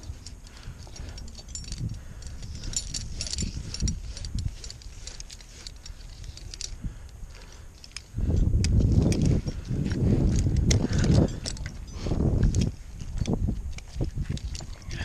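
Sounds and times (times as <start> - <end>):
small metal clinks and jingles: 0.0 - 15.0.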